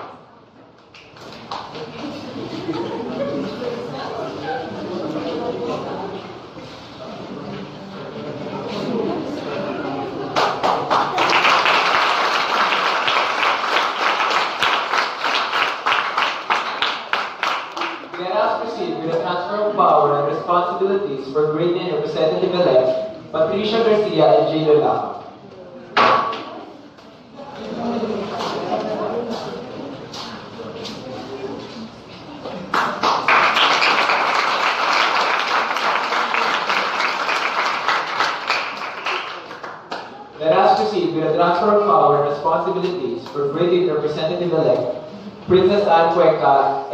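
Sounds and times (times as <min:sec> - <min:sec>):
audience applauding: 0:10.3 - 0:18.2, 0:32.7 - 0:40.2.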